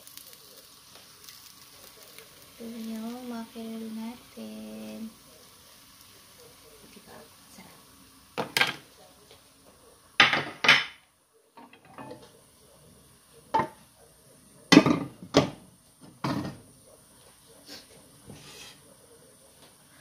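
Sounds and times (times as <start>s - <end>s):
cookware knocking and clunking: 8.4s - 8.8s, 10.2s - 11.0s, 11.6s - 12.2s, 13.5s - 13.8s, 14.7s - 16.6s
lidded pan set on stove: 8.4s - 9.4s, 11.6s - 12.4s, 17.7s - 18.9s.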